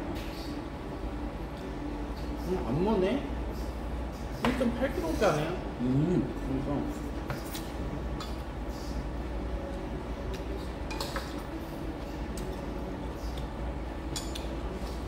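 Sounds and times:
low background hum: 0:00.0 - 0:15.0
metal utensils clinking on bowls: 0:14.1 - 0:14.5.

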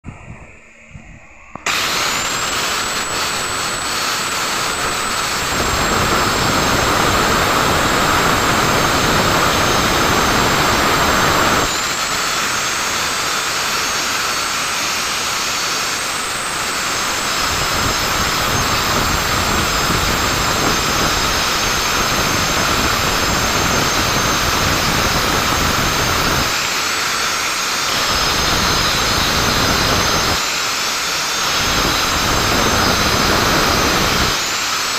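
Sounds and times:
angle grinder cutting into wall: 0:01.6 - 0:34.9.

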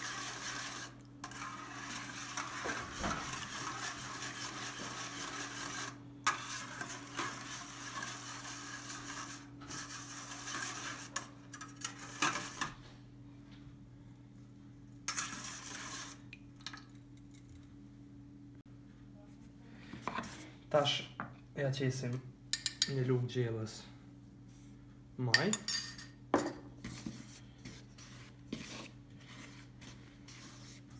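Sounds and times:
whisk swishing in a bowl: 0:00.0 - 0:12.7, 0:15.1 - 0:16.2, 0:26.8 - 0:30.9
faint steady hum: 0:00.0 - 0:30.9.

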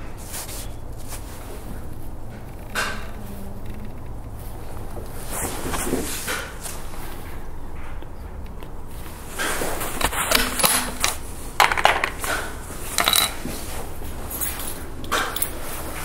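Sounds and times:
steady outdoor hiss: 0:00.0 - 0:16.0
metallic clicks and clinks: 0:10.0 - 0:13.5, 0:14.2 - 0:15.8.

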